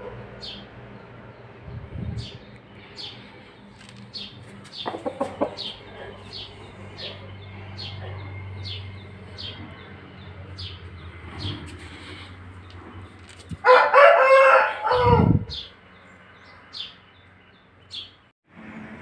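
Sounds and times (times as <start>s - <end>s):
chickens peeping: 2.2s - 7.3s
chicken clucks: 4.8s - 6.4s.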